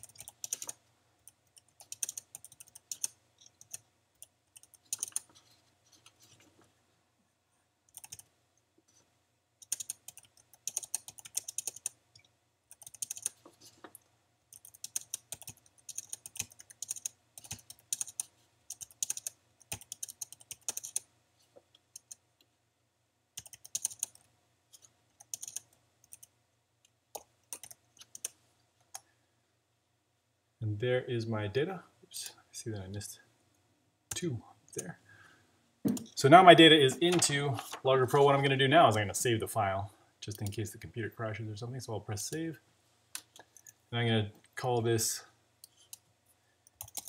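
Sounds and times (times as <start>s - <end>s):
typing on computer keyboard: 0.0s - 0.8s, 1.5s - 5.3s, 7.9s - 8.3s, 9.6s - 12.0s, 12.7s - 13.4s, 14.5s - 21.1s, 23.4s - 26.3s, 27.1s - 29.0s, 46.7s - 47.0s.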